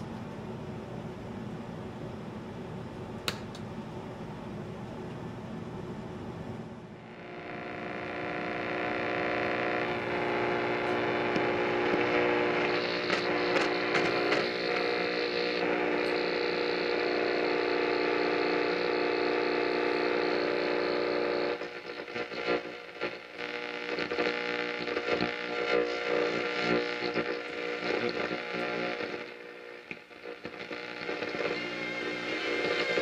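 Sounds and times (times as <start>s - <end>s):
crackling radio static: 7.0s - 33.0s
radio hum of held tones: 7.0s - 33.0s.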